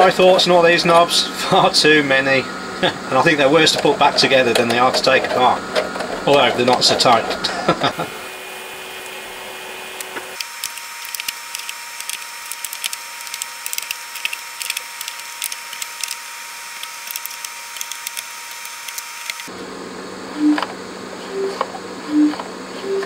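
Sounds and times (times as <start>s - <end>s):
plastic knobs clicking onto shafts: 10.0s - 16.2s, 16.8s - 19.5s.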